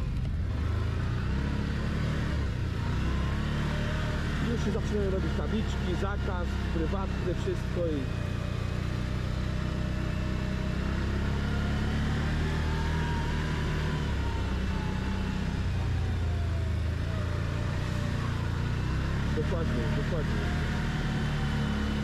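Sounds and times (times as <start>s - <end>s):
faint engine whine: 0.0s - 22.0s
quad engine running: 0.0s - 22.0s.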